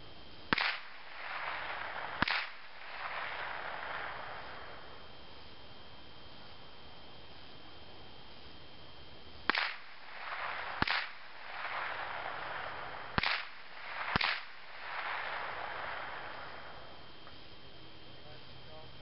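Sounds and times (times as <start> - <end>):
rolling echo: 0.0 - 5.4, 9.4 - 19.0
rifle shots: 0.5 - 5.0, 9.4 - 17.0.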